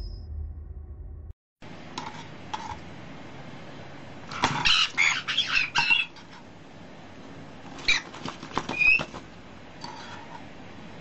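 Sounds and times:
parrot squawking: 4.3s - 6.3s, 7.8s - 9.2s
wings fluttering: 7.6s - 9.4s.

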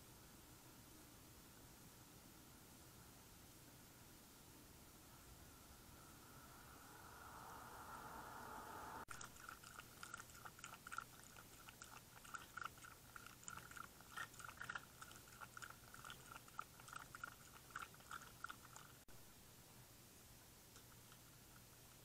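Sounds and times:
animal chewing from plastic dish: 9.1s - 19.0s.

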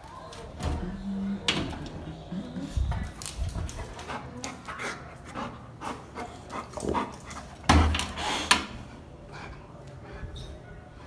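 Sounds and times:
dog panting and snuffling: 2.6s - 8.5s.

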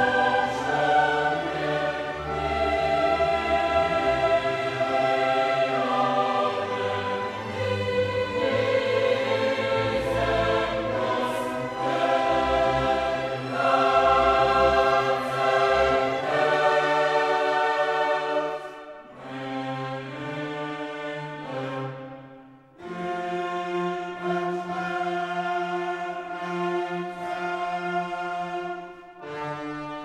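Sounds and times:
orchestra playing: 0.0s - 22.1s
choir singing: 0.0s - 30.0s.

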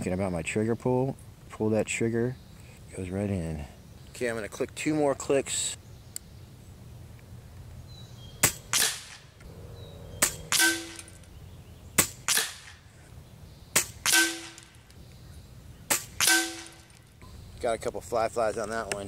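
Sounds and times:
air rifle shots: 8.4s - 9.3s, 10.2s - 11.3s, 12.0s - 12.9s, 13.7s - 14.9s, 15.9s - 17.0s
pellet striking target: 10.2s - 11.2s, 12.0s - 12.8s, 13.8s - 14.8s, 15.9s - 17.0s.

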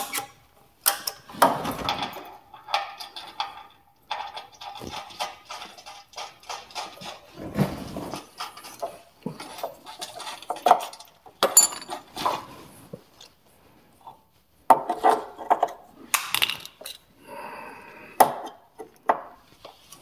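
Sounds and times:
metal bolts and tools clinking: 8.5s - 12.4s.

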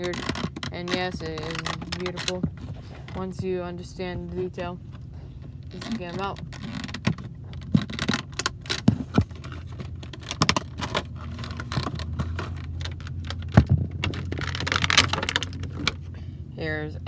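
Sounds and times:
toy packaging rustling: 0.0s - 3.3s, 5.7s - 16.1s
car cabin hum: 0.0s - 17.0s.

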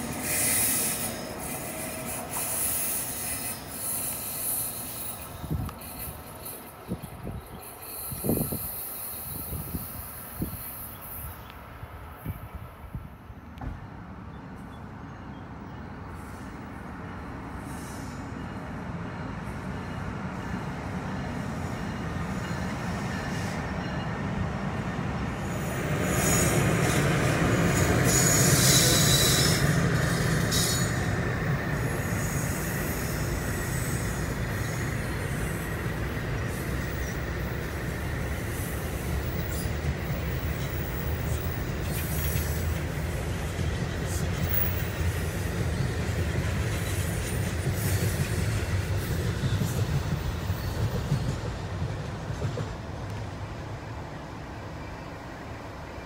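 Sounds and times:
steel wheels rumbling on rail: 0.0s - 56.0s
metallic wheel squeal: 0.2s - 11.1s, 27.8s - 31.1s.

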